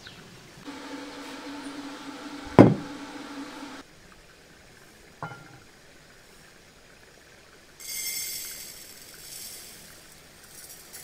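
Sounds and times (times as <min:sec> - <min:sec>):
microwave oven humming: 0:00.6 - 0:03.8
sharp knock: 0:02.5 - 0:02.9.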